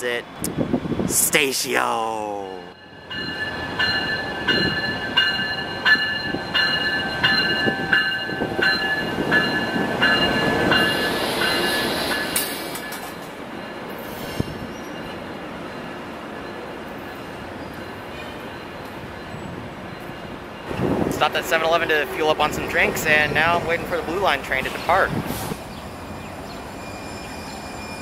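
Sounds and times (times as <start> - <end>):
train rumble and wheel noise: 0.0 - 1.3, 2.5 - 28.0
locomotive bell ringing: 2.7 - 14.0.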